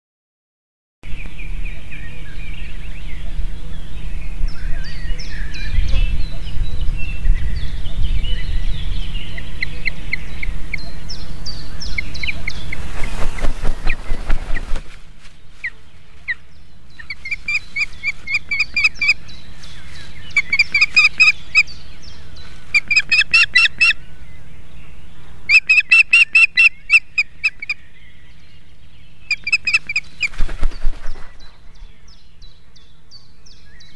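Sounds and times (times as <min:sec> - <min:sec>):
wind rumble on microphone: 0:01.1 - 0:15.6
thin bird calls: 0:01.1 - 0:33.9
wings flapping and rustling: 0:12.2 - 0:16.4, 0:29.7 - 0:31.8.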